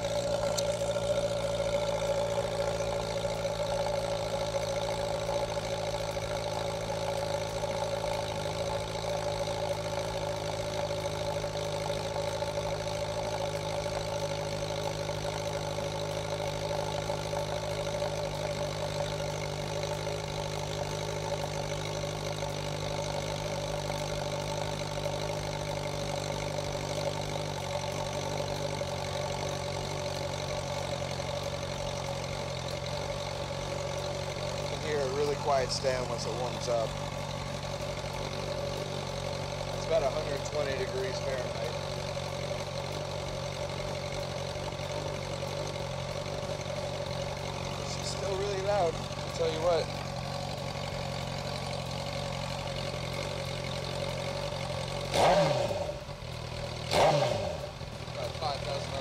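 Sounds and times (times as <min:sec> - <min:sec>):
motorcycle engine idling: 0:00.0 - 0:59.0.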